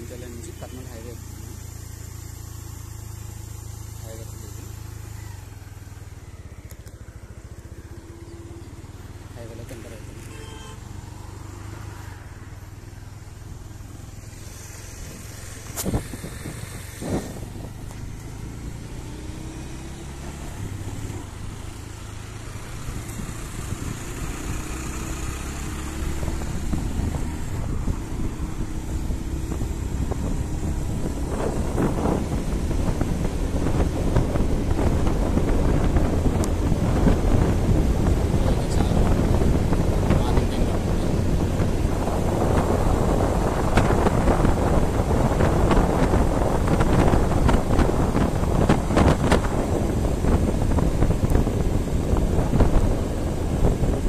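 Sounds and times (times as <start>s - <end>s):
motorcycle engine accelerating: 0.0s - 54.0s
wind rumble on microphone: 13.7s - 54.0s.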